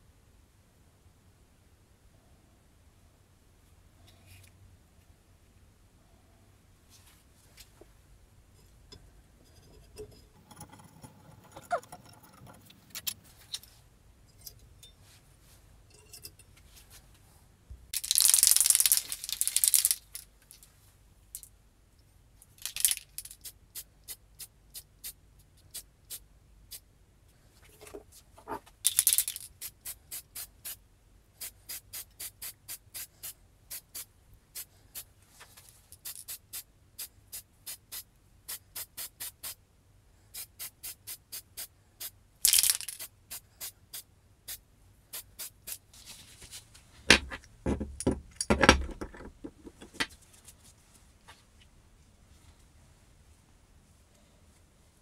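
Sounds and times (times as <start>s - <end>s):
spray can ball rattling: 18.0s - 20.6s, 22.6s - 23.6s, 28.8s - 30.8s, 35.8s - 36.6s, 42.5s - 45.9s
aerosol spray hissing: 29.6s - 30.8s, 31.4s - 35.1s, 36.0s - 39.6s, 40.3s - 42.1s, 43.0s - 45.9s.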